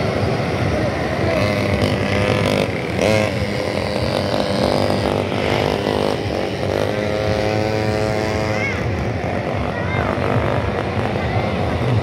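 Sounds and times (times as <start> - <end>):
small motorbike engines revving: 0.0 - 12.0.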